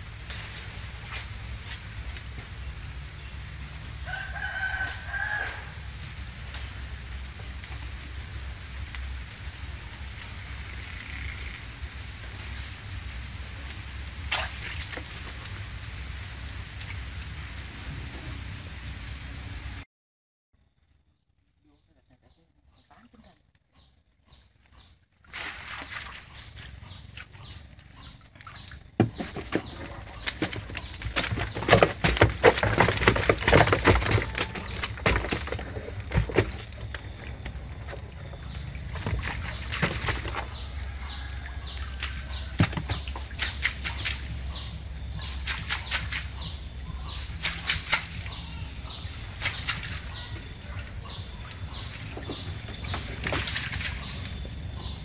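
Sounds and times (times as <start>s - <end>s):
water splashing and dripping: 0.0s - 19.8s, 24.6s - 55.0s
fish flapping in net: 25.2s - 44.4s, 45.2s - 48.4s, 49.0s - 50.4s.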